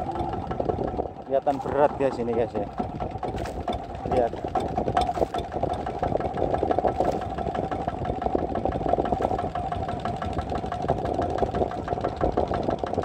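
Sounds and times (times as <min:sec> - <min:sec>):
diesel boat engine running: 0:00.0 - 0:13.0.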